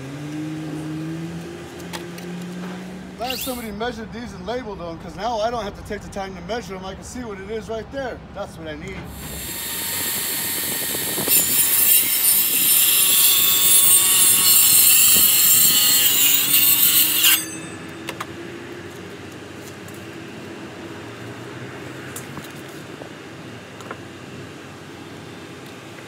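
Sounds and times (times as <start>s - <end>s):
circular saw cutting boards: 3.2s - 3.8s, 9.1s - 18.1s.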